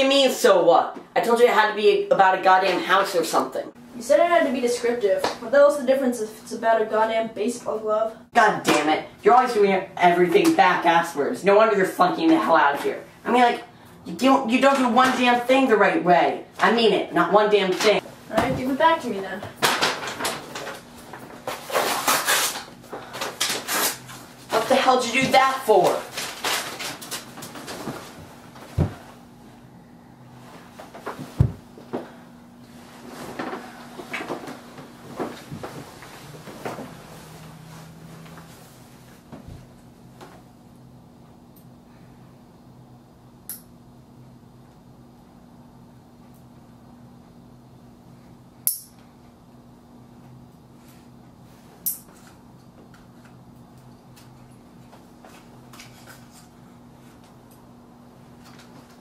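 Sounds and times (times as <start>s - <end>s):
faint steady hum: 0.0s - 59.0s
footsteps in a room: 27.4s - 29.3s, 30.4s - 40.5s.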